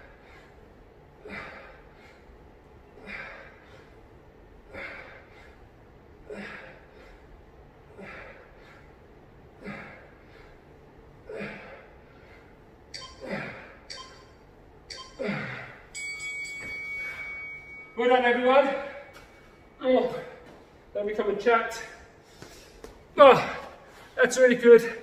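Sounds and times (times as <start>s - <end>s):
man breathing heavily: 0.0s - 13.9s, 15.1s - 16.0s, 21.7s - 24.2s.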